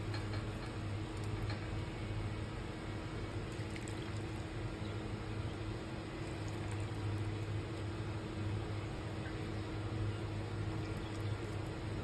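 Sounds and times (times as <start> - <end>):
steady low hum: 0.0 - 12.0
broth pouring into a bowl: 3.3 - 4.6, 6.1 - 7.9.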